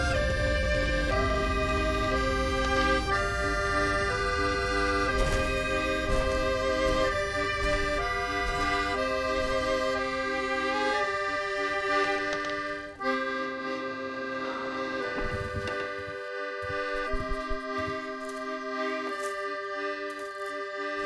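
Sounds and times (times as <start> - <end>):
soft low knocks: 0.0 - 10.5, 14.9 - 18.7
slow sustained soundtrack music: 0.0 - 21.0.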